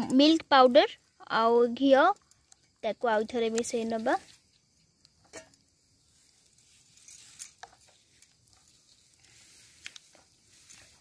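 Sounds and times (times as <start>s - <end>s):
light metallic clinks: 2.1s - 2.8s, 4.6s - 11.0s.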